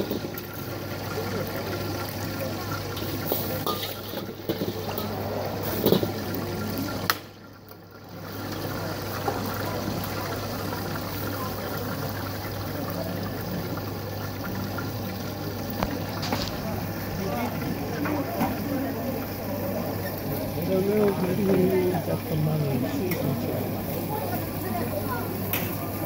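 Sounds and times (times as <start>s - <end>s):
gas burner rushing: 2.8s - 7.3s.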